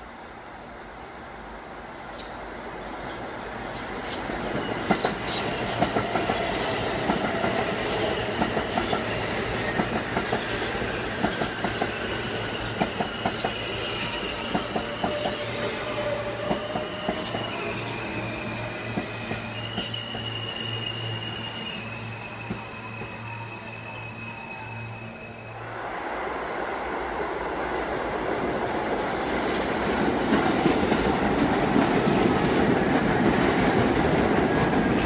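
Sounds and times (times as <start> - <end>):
train wheels clicking on rail joints: 3.6 - 20.4, 29.3 - 35.0.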